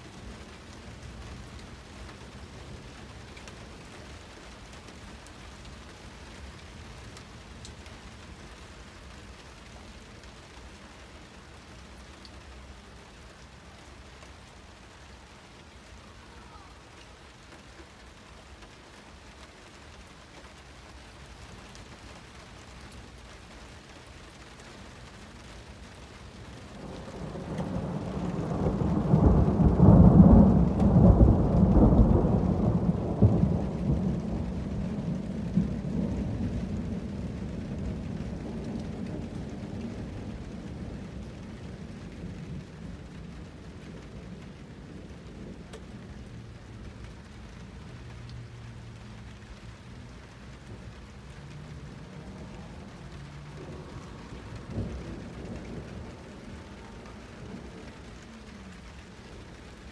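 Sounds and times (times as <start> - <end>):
steady rain: 0.0 - 59.9
thunder rumbling: 26.5 - 47.9, 48.9 - 59.9.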